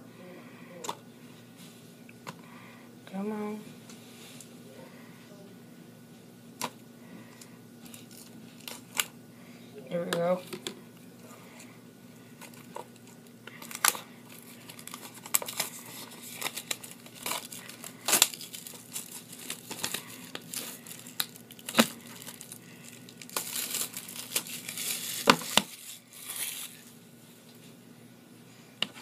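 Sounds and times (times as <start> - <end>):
plastic wrap crinkling and tearing: 7.8 - 9.1, 12.4 - 27.0.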